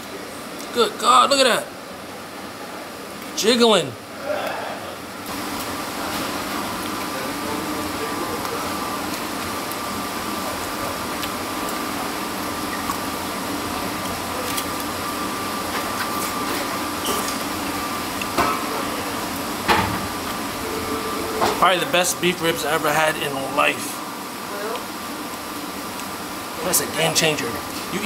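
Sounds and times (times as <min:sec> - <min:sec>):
ventilation hum: 0:00.0 - 0:28.0
faint high whine: 0:20.5 - 0:24.0.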